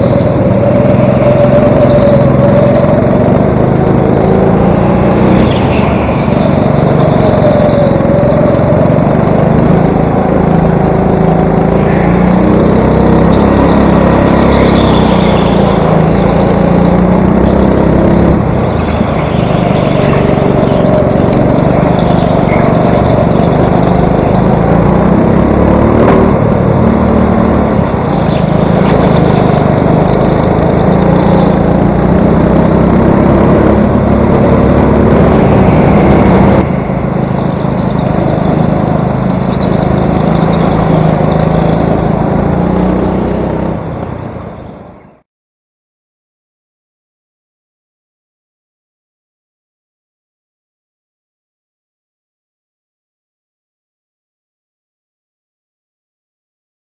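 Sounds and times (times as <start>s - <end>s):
go-kart engine revving: 0.0s - 45.2s
other go-kart engines: 0.0s - 45.2s.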